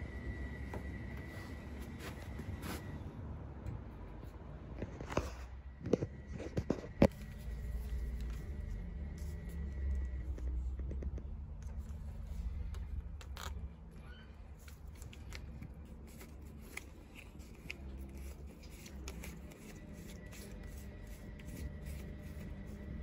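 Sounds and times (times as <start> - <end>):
steady low rumble: 5.5 - 14.0.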